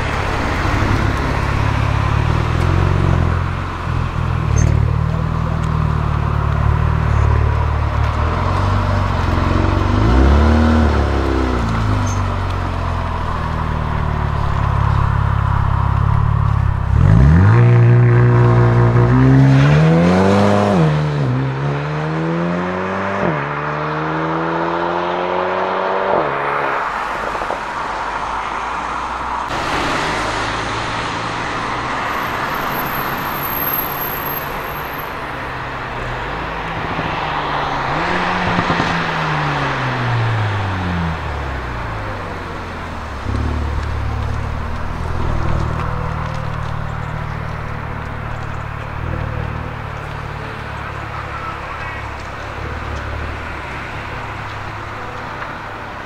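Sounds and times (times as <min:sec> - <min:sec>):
car engine accelerating: 0:00.0 - 0:27.4.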